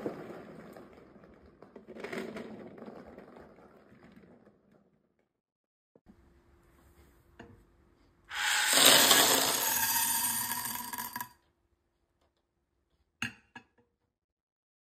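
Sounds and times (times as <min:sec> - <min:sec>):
beads pouring into glass: 0:08.3 - 0:11.3.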